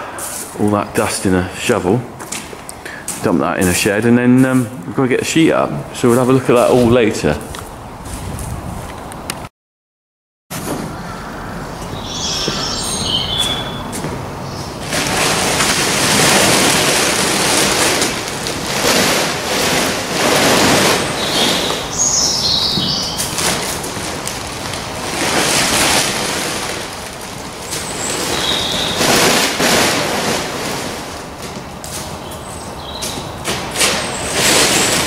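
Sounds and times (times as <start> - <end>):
plastic sheeting rustling: 0.1 - 7.4, 12.0 - 35.0
bird chirps: 10.9 - 14.8, 21.2 - 23.4, 27.8 - 29.0.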